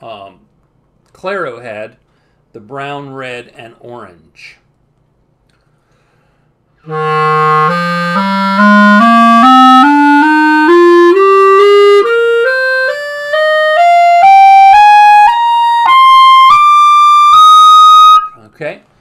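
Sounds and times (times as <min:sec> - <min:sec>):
clarinet playing rising scale: 0:06.8 - 0:18.4.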